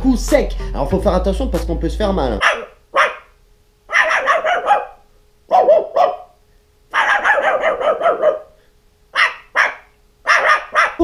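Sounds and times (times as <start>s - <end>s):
man imitating dog yapping: 9.2s - 11.0s.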